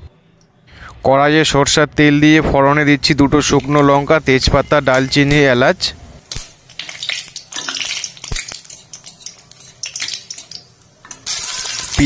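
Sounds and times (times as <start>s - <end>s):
onion sizzling in oil: 2.7s - 12.0s
spices frying in oil: 2.7s - 12.0s.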